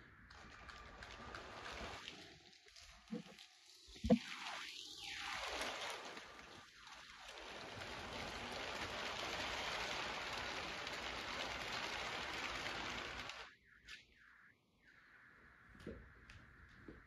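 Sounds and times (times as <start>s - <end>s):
toy train wheels rolling on track: 5.2s - 13.6s.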